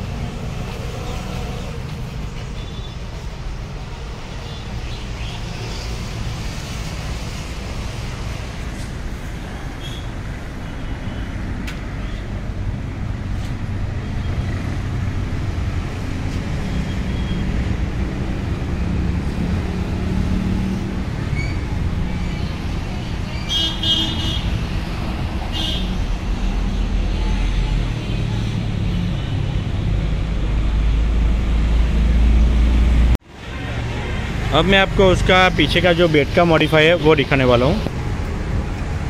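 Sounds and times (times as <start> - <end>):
rumble of passing vehicles: 0.0 - 39.0
high horn toots: 23.4 - 24.6, 25.5 - 26.0.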